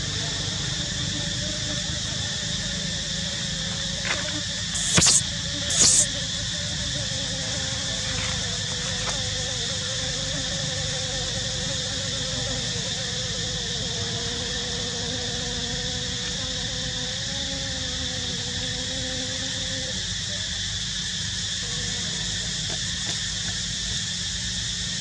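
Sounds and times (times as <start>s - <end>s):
forest insects buzzing: 0.0s - 25.0s
sharp high-pitched bursts: 4.7s - 6.1s.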